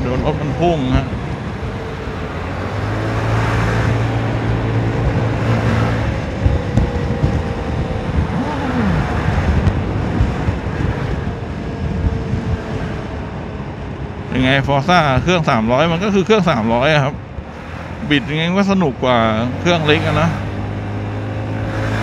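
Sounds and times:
wind rushing over microphone: 0.0 - 22.0
road knocks: 2.8 - 11.2.

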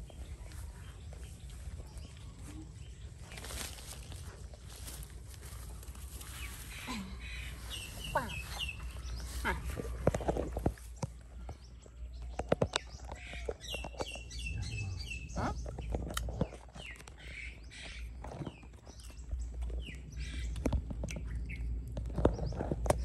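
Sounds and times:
birds chirping: 0.0 - 23.0
fruit being bitten: 15.4 - 17.2.

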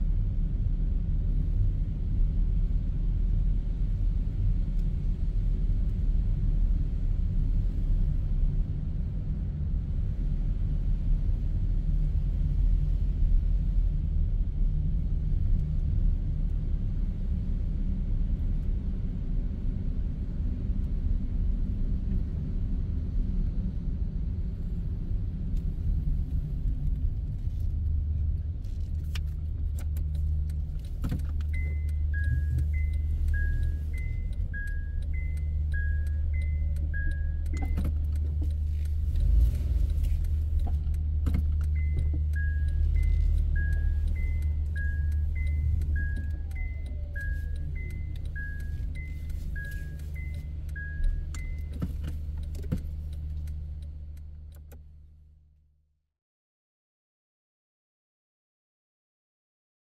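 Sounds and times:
car engine idling: 25.5 - 55.2
two-tone reverse warning beep: 31.5 - 38.0, 41.7 - 51.8.

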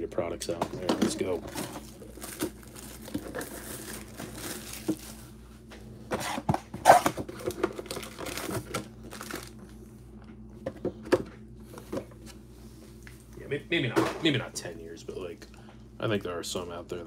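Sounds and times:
shrink wrap crinkling: 1.1 - 5.4, 6.9 - 9.7.

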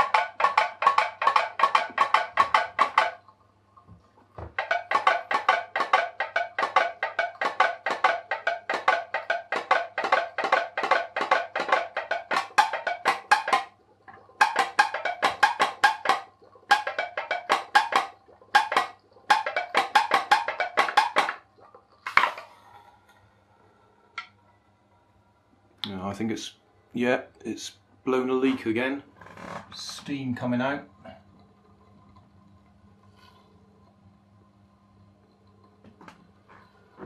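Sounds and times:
pop-pop boat popping: 0.0 - 22.5.

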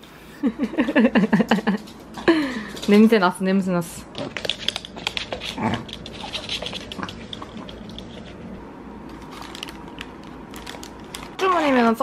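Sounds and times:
claws clicking on hard floor: 4.1 - 8.5
dogs chewing treats: 4.1 - 12.0.

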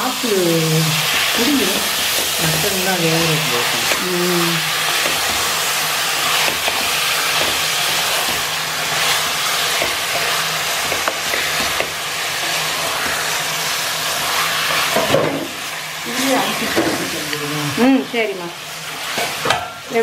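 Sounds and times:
meat sizzling in hot oil: 0.0 - 20.0.

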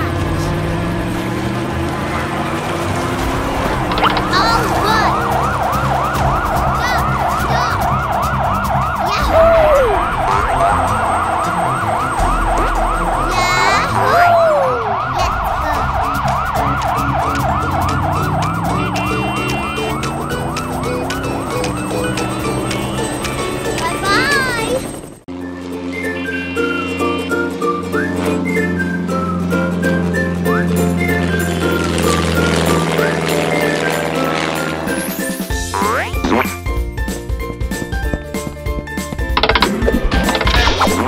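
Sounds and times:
cartoon siren wailing: 3.9 - 23.1, 26.0 - 28.4, 35.8 - 36.6.

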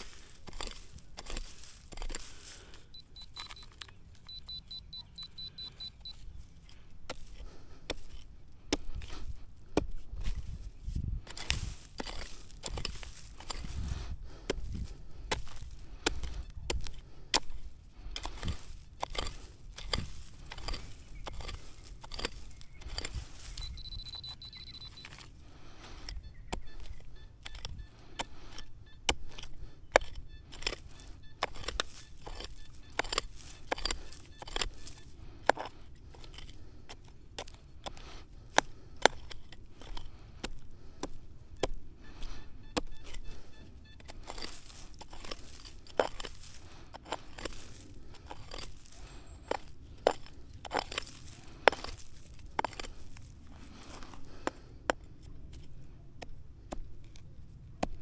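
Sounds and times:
high beep: 2.9 - 6.2, 23.5 - 25.2.

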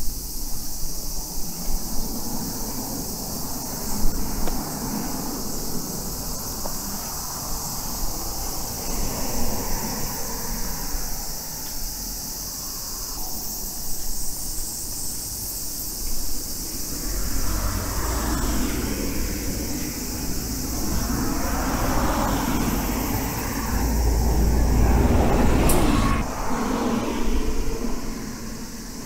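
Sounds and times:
road traffic passing: 0.3 - 29.0
bus driving past: 15.2 - 29.0.

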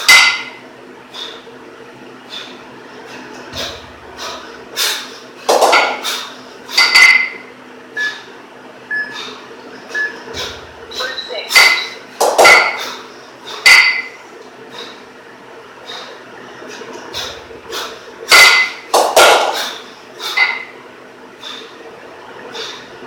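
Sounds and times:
kettlebells thudding: 0.0 - 0.5, 5.5 - 7.4, 11.5 - 13.0, 13.6 - 14.2, 18.3 - 19.8
kettlebells clanking together: 5.5 - 6.0, 11.5 - 12.9, 18.3 - 19.7.

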